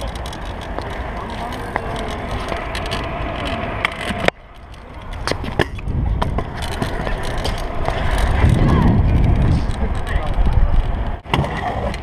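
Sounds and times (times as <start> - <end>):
scooter knocking on concrete: 0.0 - 4.4
scooter wheels rolling on concrete: 0.0 - 12.0.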